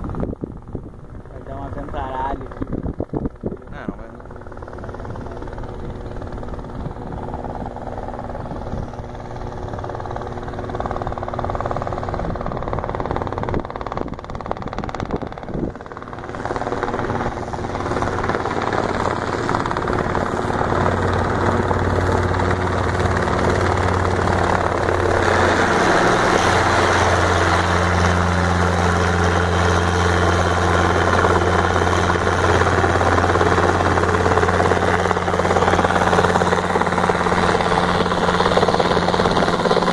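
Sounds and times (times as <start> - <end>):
helicopter hovering: 0.0 - 39.9
rushing rotor wash: 16.2 - 39.9.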